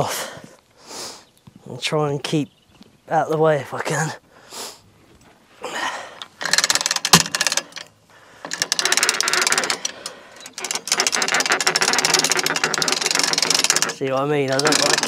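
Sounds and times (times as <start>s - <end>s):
ratchet strap clicking: 6.2s - 15.0s.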